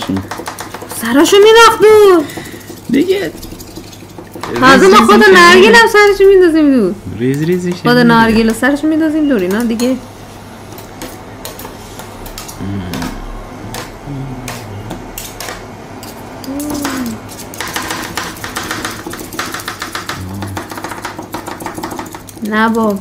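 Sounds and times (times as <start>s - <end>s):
metal spatulas chopping on steel plate: 0.0s - 5.8s, 10.8s - 23.0s.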